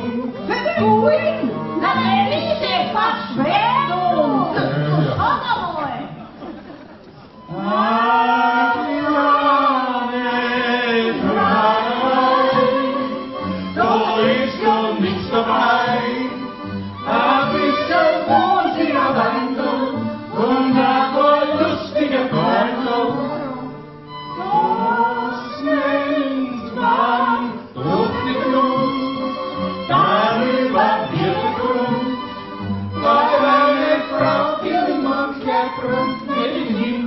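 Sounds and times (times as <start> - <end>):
violins accordion and guitar: 0.0 - 5.2, 7.3 - 37.0.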